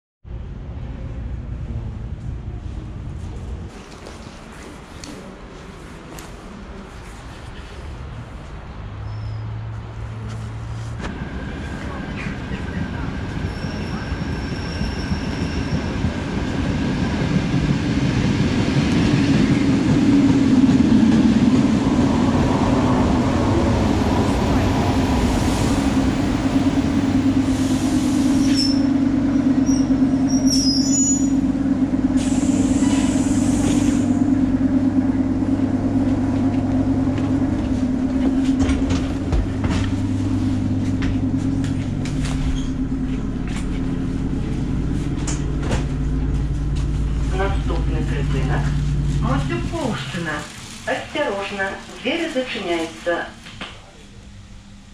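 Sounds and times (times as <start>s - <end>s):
electric train humming on rails: 0.3s - 54.9s
high wheel squeals: 9.0s - 9.6s, 13.3s - 16.2s, 28.3s - 31.5s.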